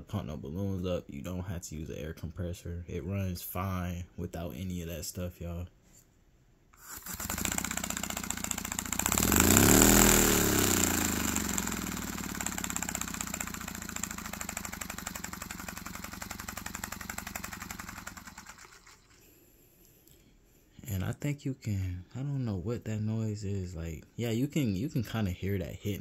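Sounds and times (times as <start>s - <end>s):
air engine exhaust puffs: 6.8s - 18.6s
crank hitting crankcase: 11.4s - 19.0s.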